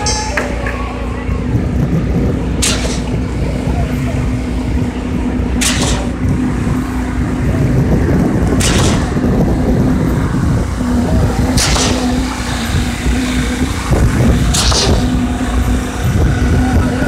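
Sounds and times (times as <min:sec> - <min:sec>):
concrete pump engine rumble: 0:00.0 - 0:17.0
pump hiss: 0:05.6 - 0:06.6, 0:11.5 - 0:16.0.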